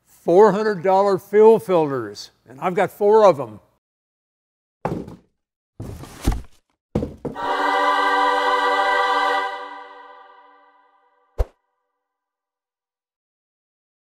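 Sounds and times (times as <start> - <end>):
thuds: 4.9 - 7.4
held musical chord: 7.4 - 11.2.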